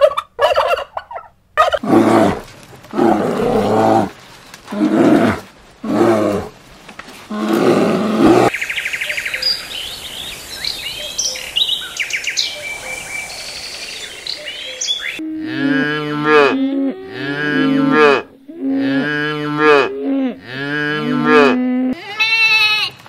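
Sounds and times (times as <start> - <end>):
steady hiss: 4.8 - 15.0
small birds chirping: 8.5 - 15.2
calves mooing: 15.2 - 22.8.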